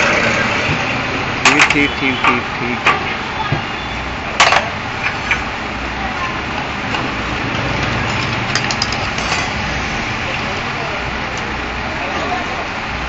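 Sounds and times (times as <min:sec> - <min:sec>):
metal tools clinking on engine: 0:01.4 - 0:03.0, 0:04.4 - 0:05.5, 0:07.8 - 0:09.8.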